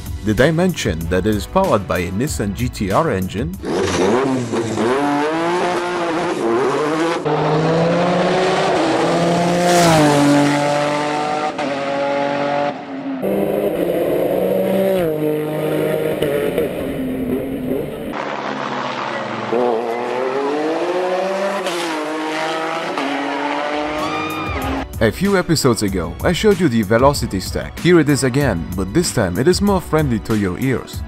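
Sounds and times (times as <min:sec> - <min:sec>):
race car accelerating through gears: 0:03.6 - 0:24.8.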